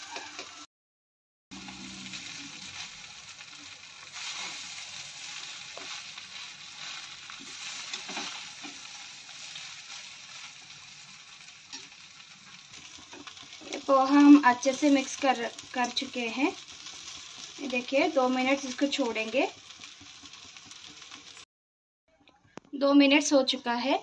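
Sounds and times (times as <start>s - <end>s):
frying hiss: 1.5s - 21.5s
spatula scraping metal pan: 4.2s - 10.6s.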